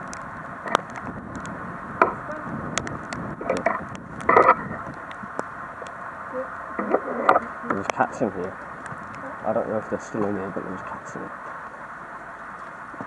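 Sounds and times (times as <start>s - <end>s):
scattered clicks: 0.0s - 2.2s
steady hiss: 0.0s - 13.0s.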